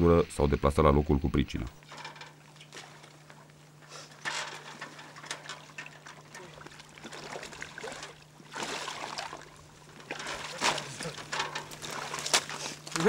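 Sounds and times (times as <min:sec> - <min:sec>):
boots wading through water: 0:04.7 - 0:13.0.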